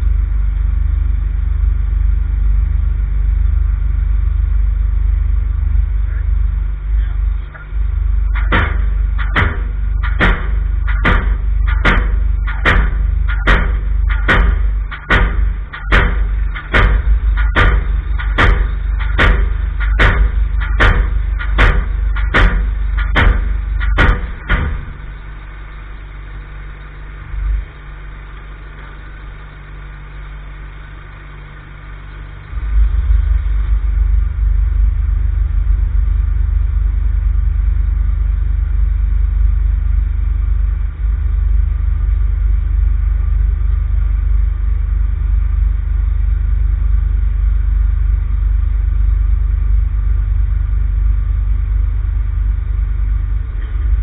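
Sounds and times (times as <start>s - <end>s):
engine running: 0.0s - 54.0s
pile-driving hammer striking timber: 8.4s - 25.1s.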